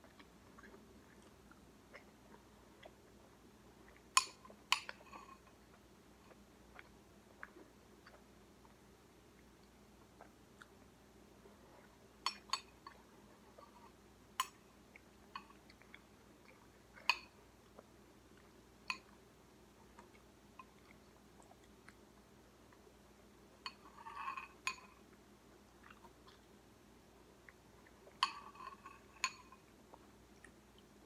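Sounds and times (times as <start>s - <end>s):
spoon clinking against ceramic bowl: 28.2s - 29.6s.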